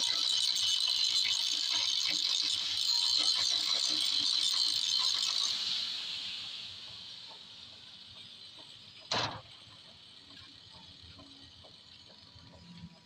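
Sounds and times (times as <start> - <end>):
angle grinder grinding steel: 0.0 - 7.4.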